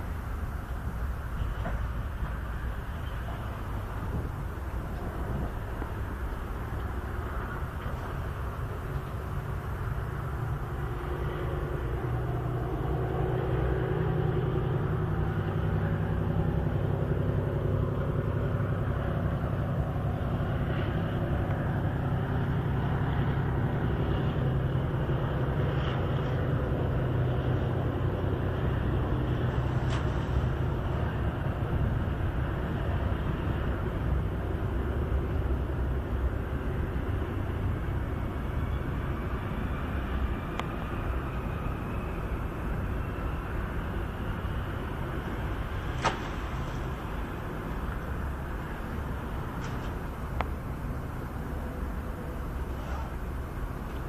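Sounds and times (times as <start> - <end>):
engine idling: 0.0 - 54.0.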